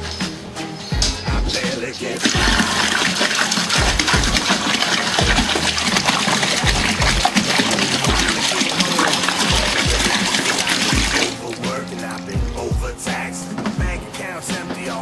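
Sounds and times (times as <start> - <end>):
low pulsing beat: 1.0 - 2.9, 3.8 - 4.6, 5.2 - 8.4, 9.5 - 10.2, 10.8 - 15.0
water gushing from bottle: 2.2 - 12.8.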